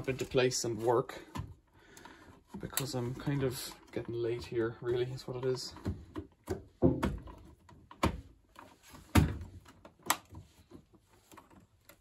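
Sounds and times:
plastic panel knocks and clicks: 5.7 - 8.4.

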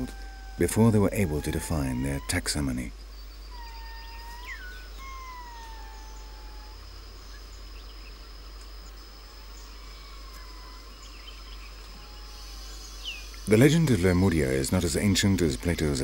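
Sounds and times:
lemurs calling: 0.0 - 8.1, 8.9 - 16.0.

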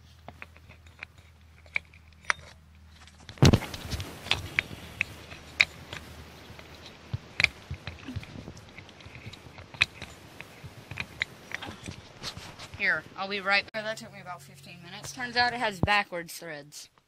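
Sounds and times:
handling clicks and knocks: 0.0 - 13.0.

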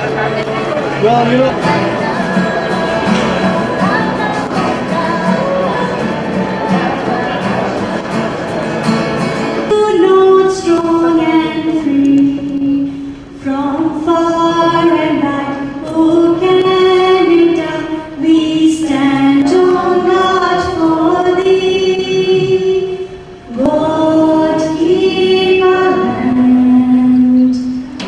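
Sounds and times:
woman singing into microphone: 1.6 - 8.1, 9.6 - 28.0.

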